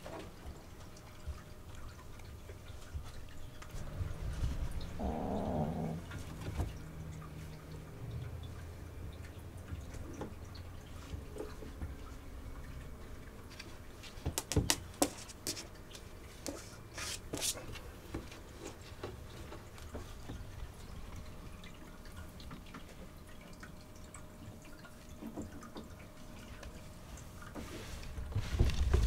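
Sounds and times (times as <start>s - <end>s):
cat paws tapping on wooden shelves: 13.5s - 20.6s.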